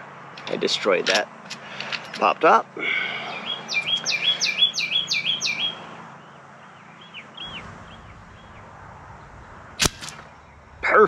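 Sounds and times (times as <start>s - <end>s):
songbird whistling: 3.0s - 5.8s, 6.7s - 8.7s.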